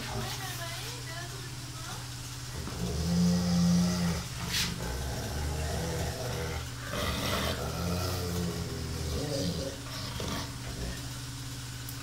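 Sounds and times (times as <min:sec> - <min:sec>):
dog moaning rumble: 0:02.5 - 0:11.2.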